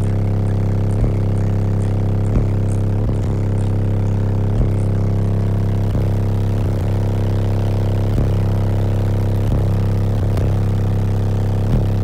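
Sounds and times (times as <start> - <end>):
subwoofers playing loud bass note: 0.0 - 12.0.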